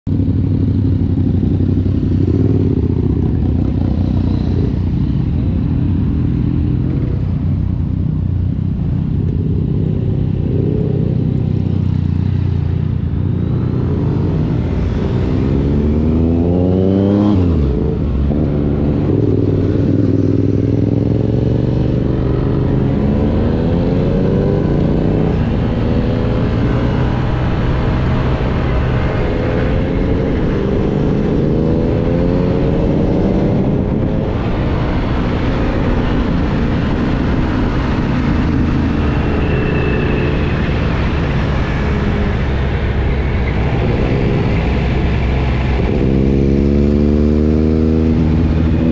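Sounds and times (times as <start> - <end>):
motorcycle engine drone: 0.0 - 48.9
wind rush: 13.8 - 48.9.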